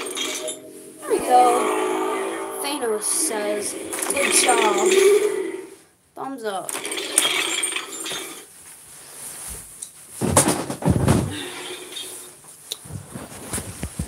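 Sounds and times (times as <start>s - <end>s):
camera rustling against clothing: 12.8s - 14.0s.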